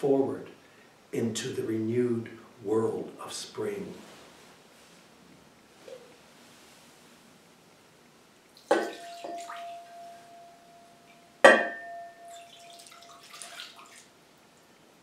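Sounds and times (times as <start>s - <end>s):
water pouring into bowl: 8.6s - 9.9s, 12.3s - 14.1s
bowl ringing: 8.7s - 13.2s
pitcher knocking on ceramic bowl: 11.4s - 12.3s.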